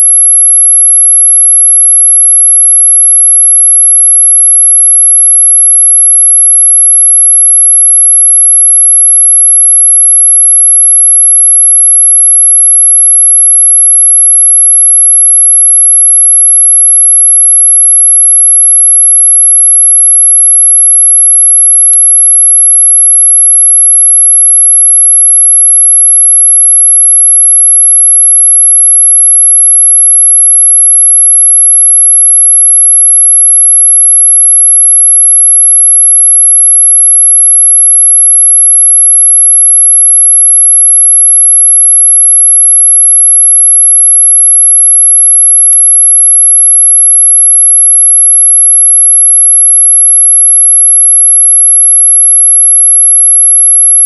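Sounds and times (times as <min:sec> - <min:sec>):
high-pitched pure tone: 0:00.0 - 0:00.4.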